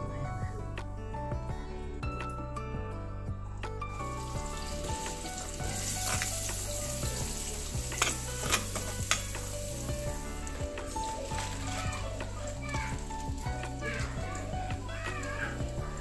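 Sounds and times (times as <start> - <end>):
soft background music: 0.0 - 16.0
onions sizzling in hot oil: 3.9 - 16.0.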